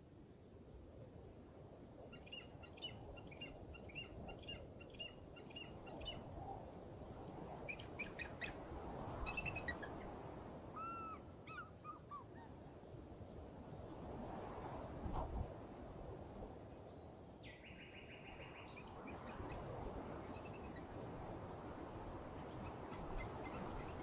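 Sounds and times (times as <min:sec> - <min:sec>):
small birds chirping: 0:02.2 - 0:06.2, 0:09.2 - 0:10.1, 0:22.5 - 0:24.0.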